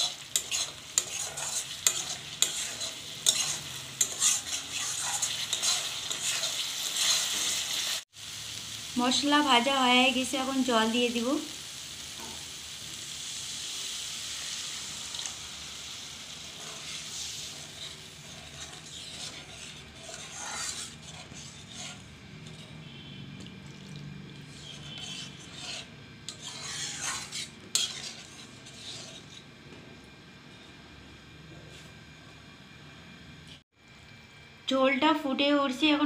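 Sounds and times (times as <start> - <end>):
spatula stirring and scraping pan: 0.0 - 8.0, 14.4 - 29.8
water sizzling in hot pan: 0.0 - 22.4.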